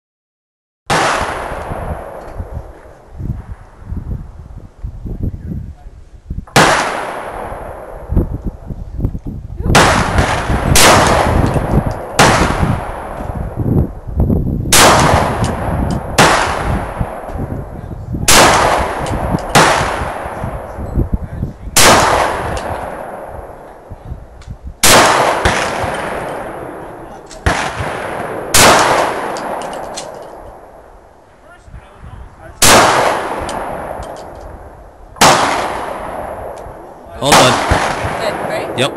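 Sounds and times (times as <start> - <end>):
pistol shots with echo: 0.9 - 2.2, 6.5 - 8.1, 9.7 - 13.4, 14.7 - 17.5, 18.2 - 20.8, 21.7 - 23.9, 24.8 - 30.8, 32.6 - 38.9.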